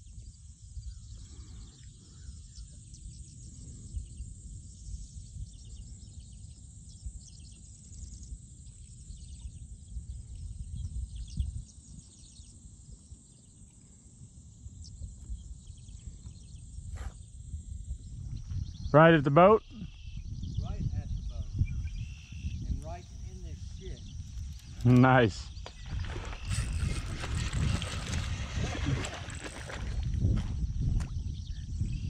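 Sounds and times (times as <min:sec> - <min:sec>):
insects chirping: 0:00.0 - 0:32.0
wind rumble on microphone: 0:00.0 - 0:32.0
birds chirping: 0:14.8 - 0:30.0.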